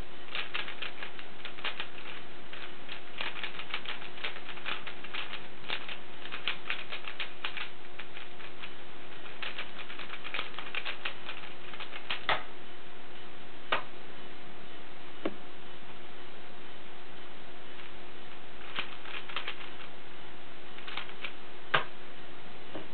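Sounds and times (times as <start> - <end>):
faint steady hum: 0.0 - 22.9
puzzle cube clicking: 0.3 - 8.3, 18.7 - 19.8.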